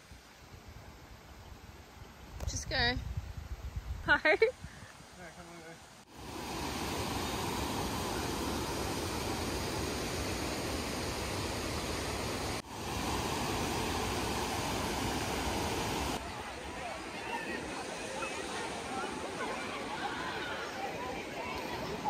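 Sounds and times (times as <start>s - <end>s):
water rushing over rapids: 5.5s - 22.0s.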